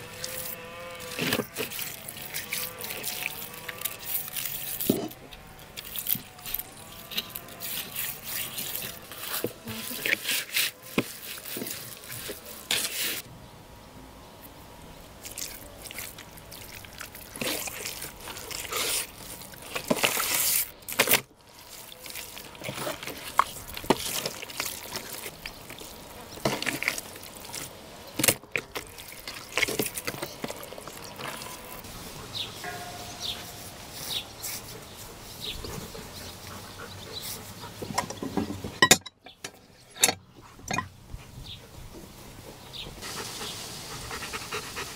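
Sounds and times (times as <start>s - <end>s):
hands rubbing oil into meat: 5.8s - 13.2s.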